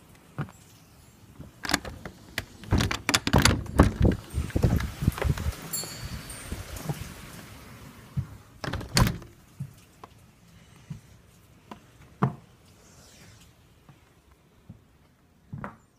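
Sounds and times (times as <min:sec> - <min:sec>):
heavy rain hissing: 0:04.0 - 0:09.6
door shutting with a thunk: 0:08.6 - 0:09.3.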